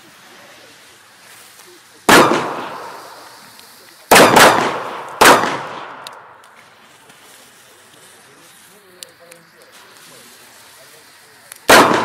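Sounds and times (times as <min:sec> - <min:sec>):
firecracker bangs with echo: 0:02.0 - 0:03.5, 0:04.1 - 0:06.8, 0:11.6 - 0:12.0.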